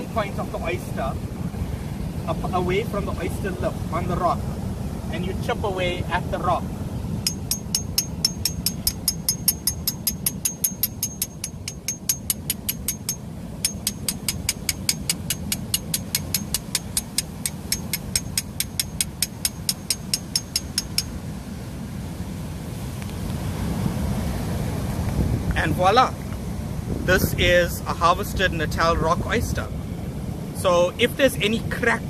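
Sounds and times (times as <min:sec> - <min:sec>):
hammer striking chisel on rock: 0:07.2 - 0:21.2.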